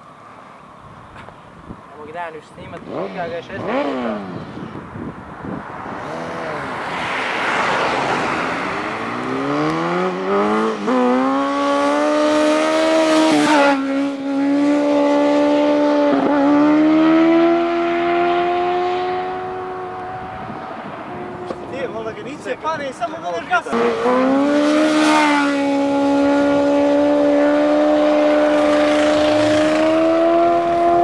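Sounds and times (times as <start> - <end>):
motorcycle engine revving hard: 2.9 - 4.6, 8.5 - 20.4, 23.7 - 31.0.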